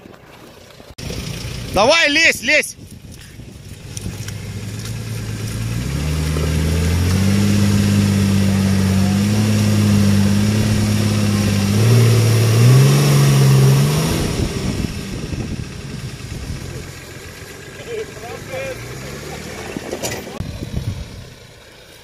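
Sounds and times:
engine revving hard: 3.9s - 21.3s.

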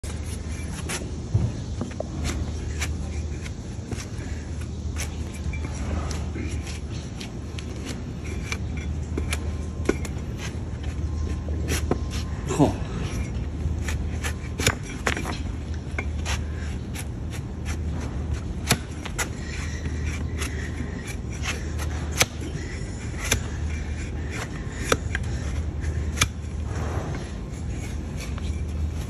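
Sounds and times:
knife scraping hoof: 0.0s - 29.0s.

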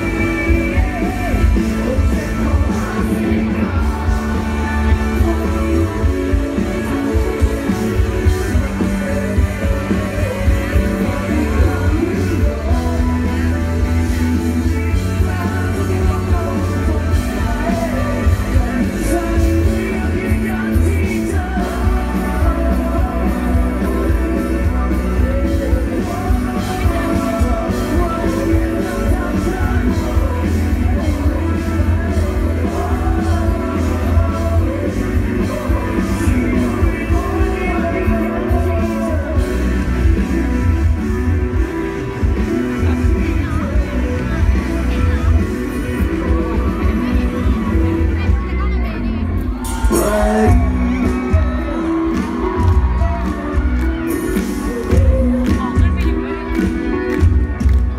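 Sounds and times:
live rock band playing: 0.0s - 57.9s
man singing lead vocal: 0.0s - 57.9s.

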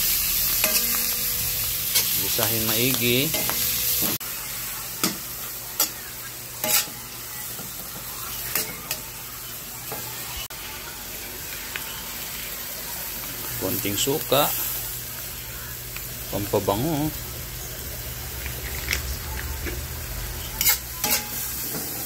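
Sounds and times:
mussels sizzling in a wok: 0.0s - 22.0s
metal spatula scraping a pan: 6.6s - 7.1s, 20.4s - 22.0s.

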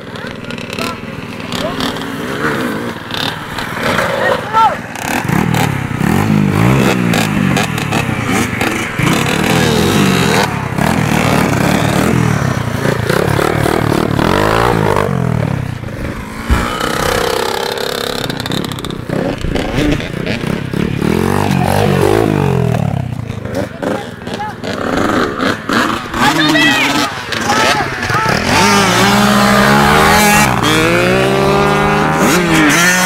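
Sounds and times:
dirt bikes revving hard: 0.0s - 33.0s
single thump: 16.4s - 17.7s.

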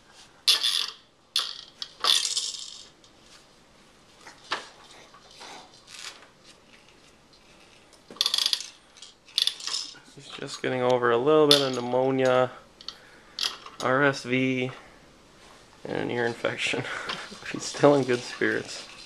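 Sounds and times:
plastic toys rattling and clattering: 0.4s - 3.0s, 4.2s - 10.0s, 13.4s - 13.9s, 16.8s - 19.0s.

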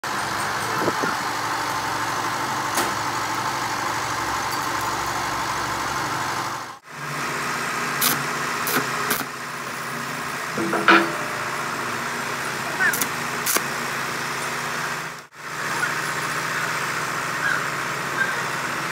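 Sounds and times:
machine humming: 10.4s - 15.2s.

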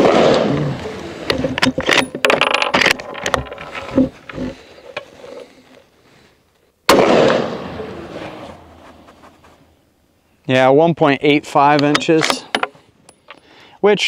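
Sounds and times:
rifle shot echoing: 0.0s - 0.8s, 6.9s - 8.0s
sharp metallic clicks and knocks: 1.3s - 5.1s, 11.7s - 13.4s.

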